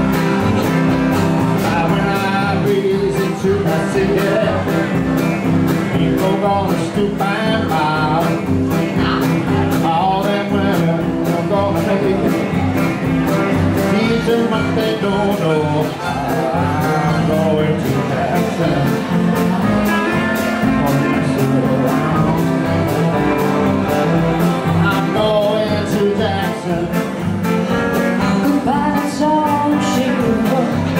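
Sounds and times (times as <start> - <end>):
live country rock band: 0.0 - 30.9
harmonica: 18.5 - 25.3.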